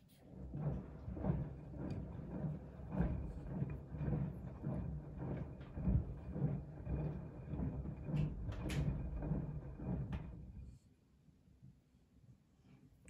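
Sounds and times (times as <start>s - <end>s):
washing machine drum turning: 0.4s - 10.6s.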